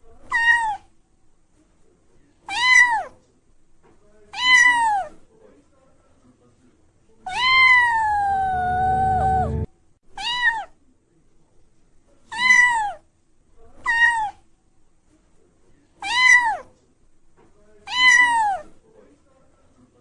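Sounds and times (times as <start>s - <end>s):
kittens meowing: 7.3s - 10.7s, 17.9s - 18.6s
low rumble: 8.1s - 9.7s.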